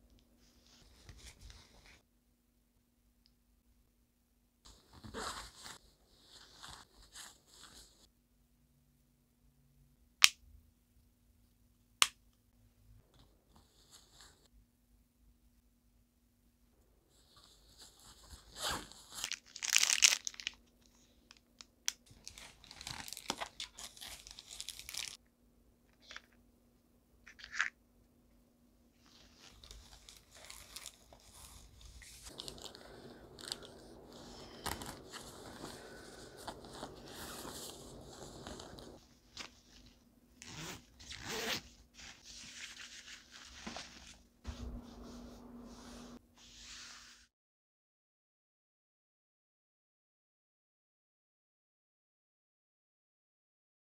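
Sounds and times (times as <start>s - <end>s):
padded fabric rustling: 4.7s - 8.1s, 29.0s - 47.2s
snack wrapper crinkling: 19.2s - 25.2s
nylon bag rustling: 22.1s - 25.2s, 29.0s - 39.6s
zipper being pulled closed: 40.4s - 41.8s.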